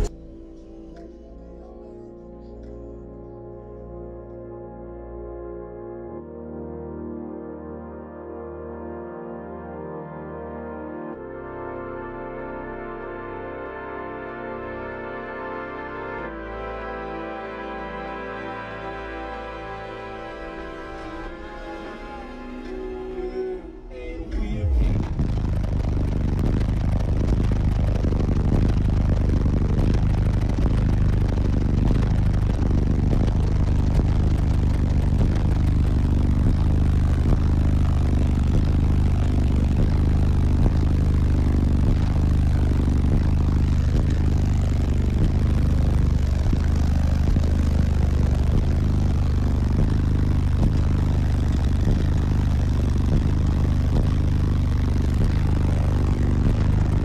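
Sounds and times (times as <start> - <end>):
subwoofers playing deep bass: 0.0 - 57.0
rattling over bass: 24.4 - 57.0.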